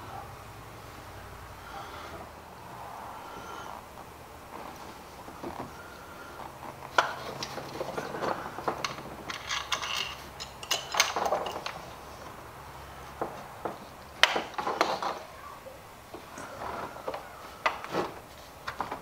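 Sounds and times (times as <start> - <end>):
hand tools clicking and clinking: 6.8 - 12.1, 13.2 - 15.4
jingling rattle: 7.2 - 11.9.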